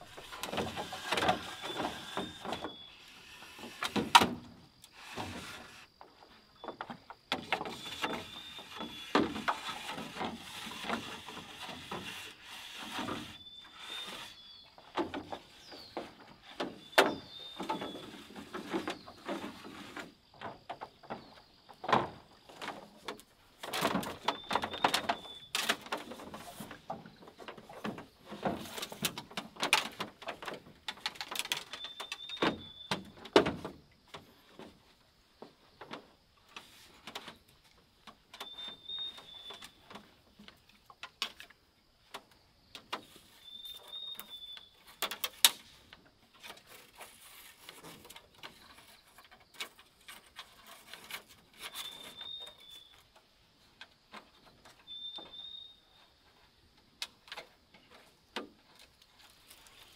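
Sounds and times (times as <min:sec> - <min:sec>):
bamboo poles clattering: 0:00.0 - 0:59.9
bird calling: 0:38.4 - 0:39.8, 0:43.3 - 0:44.8, 0:51.7 - 0:53.0, 0:54.8 - 0:56.0.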